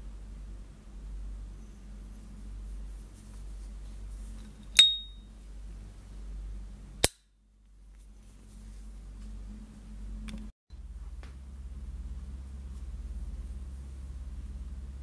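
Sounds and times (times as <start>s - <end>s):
faint low hum: 0.0s - 15.0s
sharp metal click: 4.7s - 5.2s.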